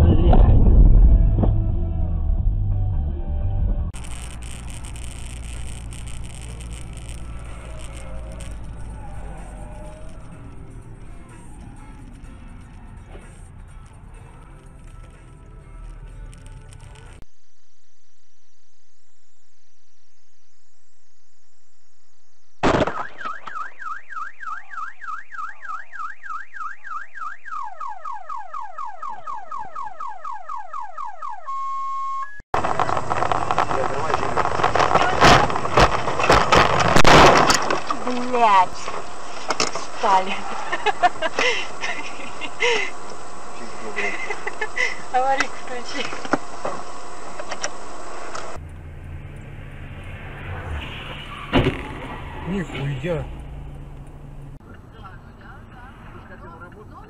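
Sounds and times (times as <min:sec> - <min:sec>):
road rumble: 0:00.0 - 0:17.3, 0:32.5 - 0:57.0
car engine hum: 0:01.2 - 0:17.3, 0:32.6 - 0:57.0
car alarm: 0:23.0 - 0:32.4
collision bang: 0:32.7 - 0:38.0, 0:50.4 - 0:53.9
sharp bang: 0:50.2 - 0:53.5.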